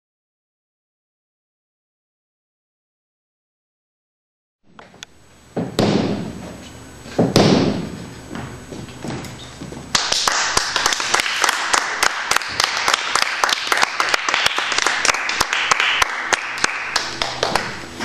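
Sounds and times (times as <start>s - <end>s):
audience applauding: 9.9s - 17.8s.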